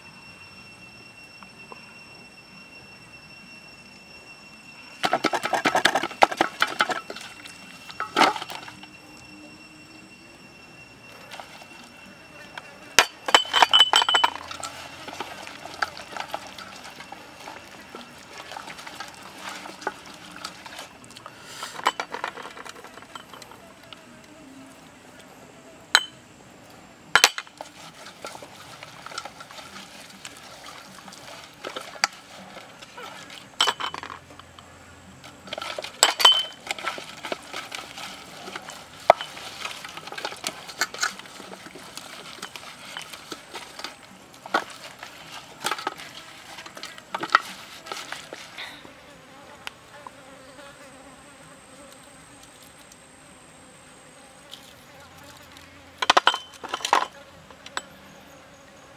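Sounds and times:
fly buzzing: 0:44.6 - 0:58.9.

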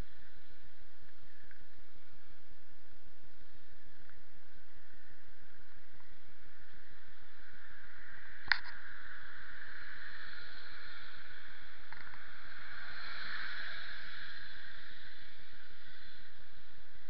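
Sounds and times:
sharp click: 0:08.4 - 0:08.8.

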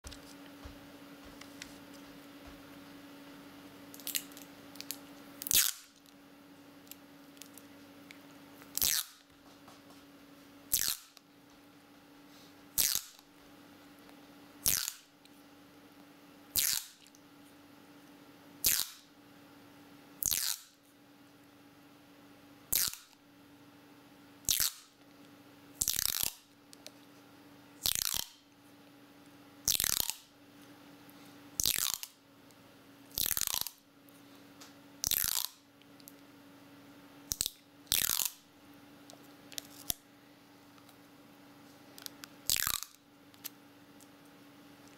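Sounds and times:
faint steady hum: 0:00.0 - 0:44.9
tape ripping off a roll: 0:05.4 - 0:06.0, 0:12.8 - 0:13.2, 0:14.6 - 0:15.1.

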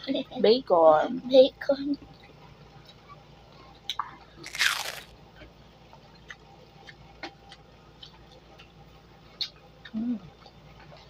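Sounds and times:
wet sucking of fingers: 0:04.4 - 0:05.1.

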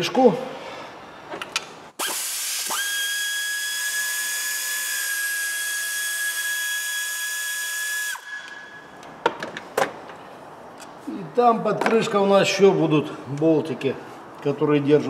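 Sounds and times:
power tool whining: 0:02.0 - 0:08.7.

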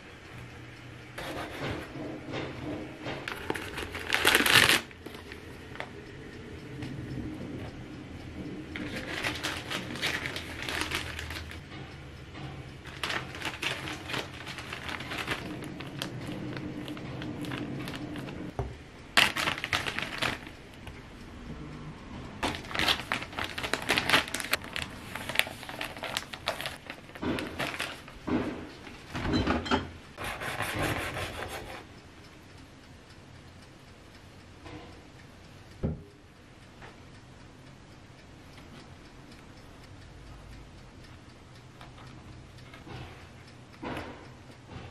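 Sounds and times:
plastic bag crinkling: 0:03.3 - 0:04.9, 0:08.8 - 0:11.6, 0:12.9 - 0:18.3, 0:19.2 - 0:20.5, 0:22.4 - 0:28.2.

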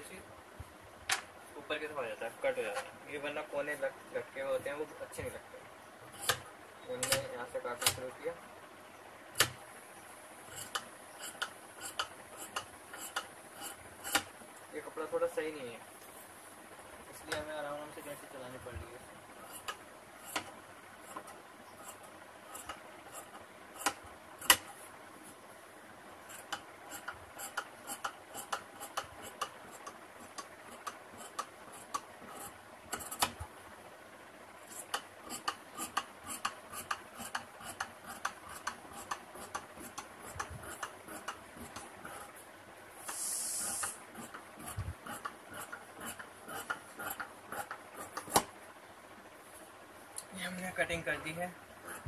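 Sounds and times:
brief hiss: 0:43.0 - 0:44.0.

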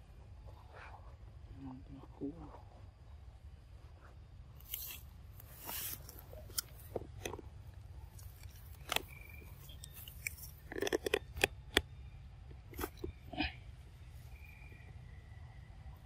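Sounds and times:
monkeys crunching nuts: 0:08.1 - 0:11.8.

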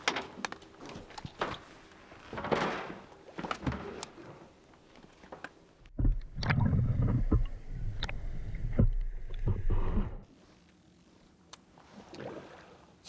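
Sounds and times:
muffled underwater rumble: 0:05.9 - 0:10.3.

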